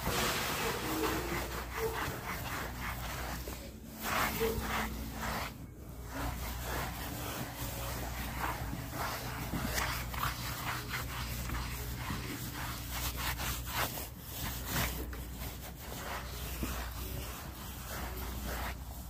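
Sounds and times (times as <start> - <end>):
comb scrubbing horse coat: 0.0 - 19.0.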